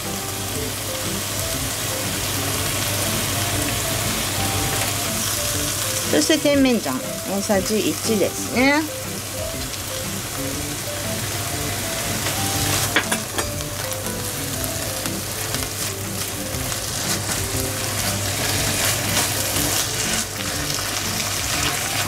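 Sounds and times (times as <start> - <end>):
food sizzling in frying pan: 0.0 - 22.0
light background tune: 0.0 - 22.0
spatula scraping pan: 16.8 - 22.0.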